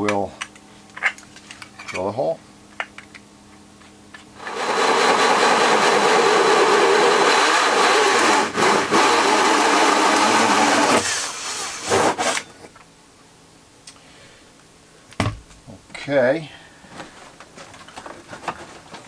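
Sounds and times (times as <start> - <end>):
cordless drill whirring: 4.4 - 12.4.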